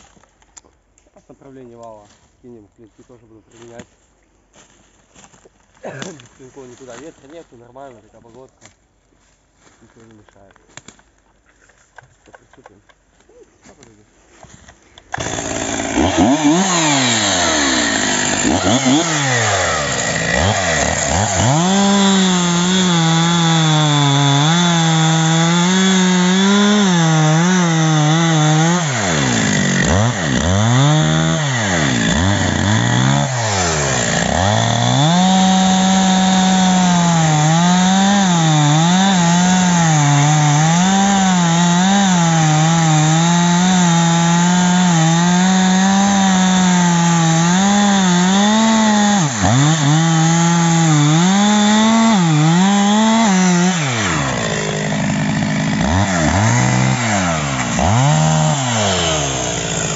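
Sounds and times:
chainsaw cutting wood: 15.0 - 59.9.

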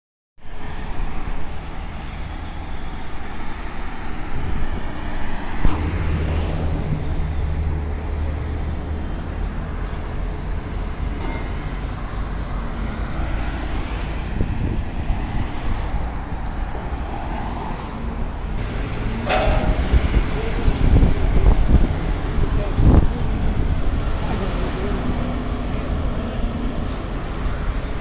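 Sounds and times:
road traffic rumble: 0.4 - 28.0
construction machinery: 7.2 - 14.3, 18.4 - 28.0
heavy engine drone: 18.0 - 28.0.

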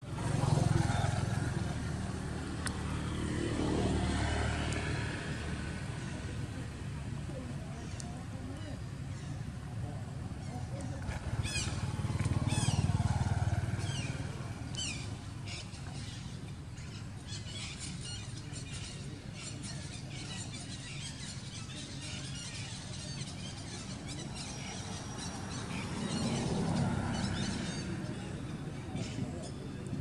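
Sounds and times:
birds calling: 10.4 - 29.8.

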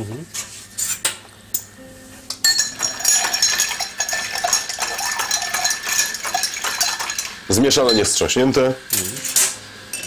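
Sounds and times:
bar spoons clinking against glass: 2.3 - 8.2.

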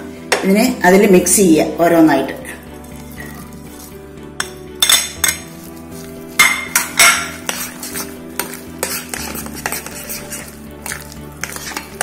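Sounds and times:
batter mixed by hand in bowl: 2.8 - 12.0
spoon clinking and scraping on glass: 2.9 - 3.8, 4.4 - 5.6, 6.4 - 12.0.

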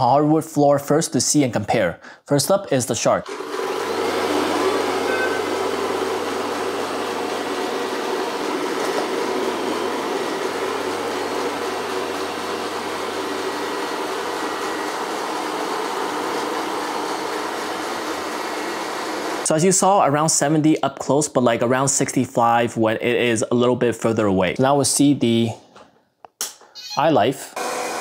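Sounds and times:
robot vacuum whirring: 3.3 - 15.4.

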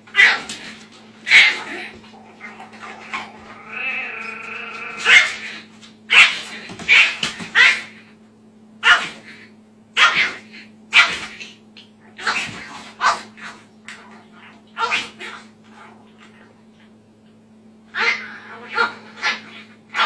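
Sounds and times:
puppy growling: 0.1 - 5.7, 17.9 - 20.0
puppy yapping: 17.9 - 20.0.

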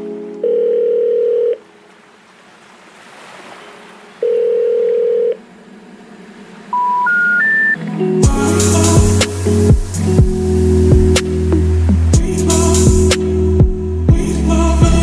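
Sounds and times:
telephone line tone: 0.4 - 1.7, 4.2 - 5.4, 6.7 - 7.8
three-note rising phone tone: 4.2 - 12.2
faint hiss: 8.2 - 13.5.

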